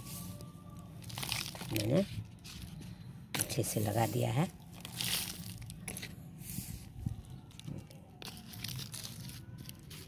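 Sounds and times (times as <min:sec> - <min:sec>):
soil crunching and scraping: 0:00.0 - 0:10.0.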